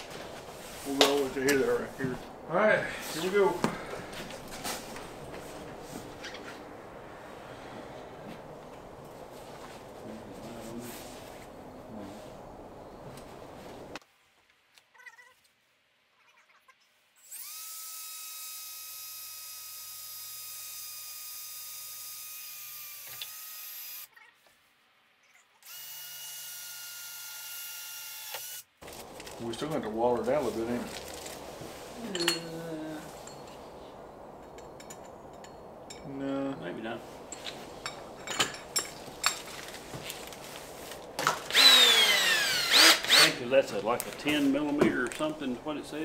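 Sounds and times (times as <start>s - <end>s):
cordless drill boring: 17.2s - 24.1s, 25.6s - 28.7s, 41.5s - 43.4s.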